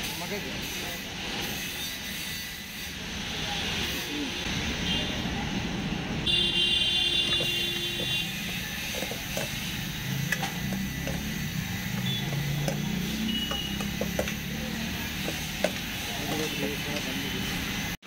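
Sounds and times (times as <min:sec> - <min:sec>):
high buzzing tone: 0:06.3 - 0:18.0
metal spoon scraping a steel bowl: 0:08.0 - 0:14.4.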